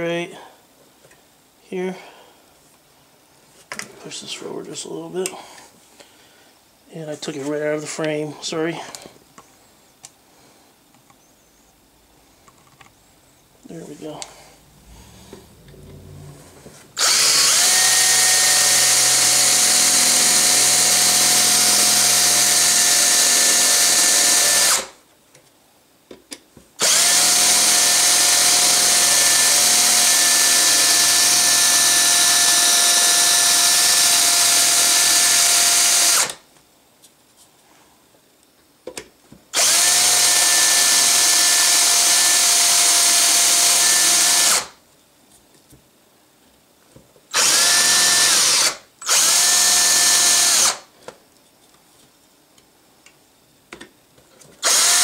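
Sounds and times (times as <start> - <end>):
power drill boring metal: 17.0 - 25.0, 26.8 - 36.4, 39.6 - 44.7, 47.4 - 50.8, 54.6 - 55.0.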